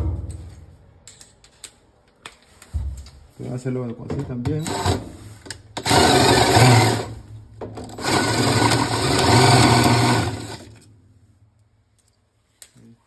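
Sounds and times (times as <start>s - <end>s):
cordless drill running: 4.6s - 5.0s, 5.8s - 7.2s, 7.9s - 10.7s.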